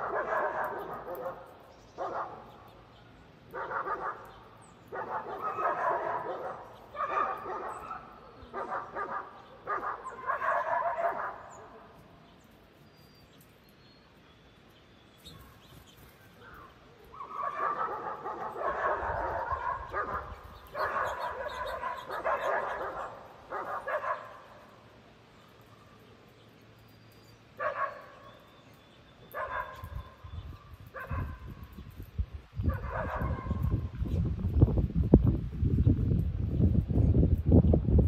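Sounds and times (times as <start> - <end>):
dog barking and yipping: 0.0 - 2.5, 3.5 - 4.3, 4.9 - 11.8, 17.2 - 24.5, 27.6 - 28.3, 29.3 - 30.1, 30.9 - 31.5, 32.7 - 33.8.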